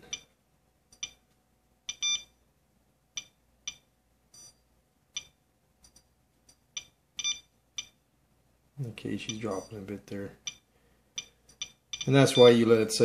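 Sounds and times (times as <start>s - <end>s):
geiger counter chirps: 11.2s - 12.6s.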